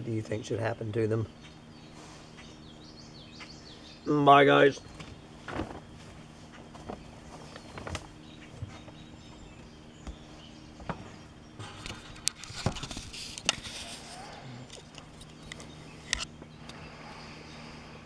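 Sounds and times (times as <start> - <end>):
camera handling noise: 11.8 - 14.1.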